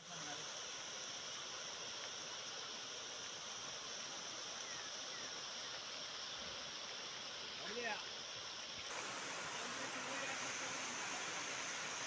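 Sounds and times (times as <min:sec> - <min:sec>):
floodwater rushing: 0:06.6 - 0:12.0.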